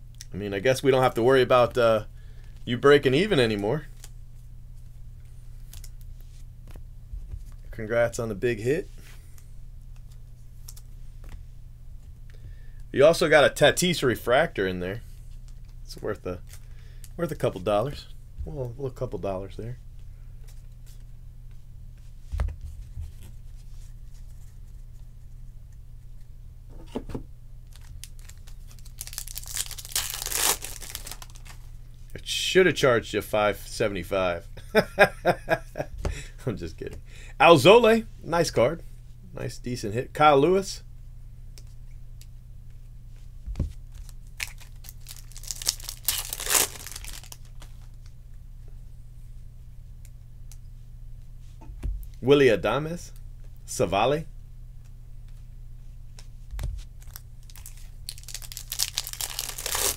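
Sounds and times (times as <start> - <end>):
foil wrapper crinkling: 27.6 - 31.8, 43.9 - 48.1, 57.0 - 59.9.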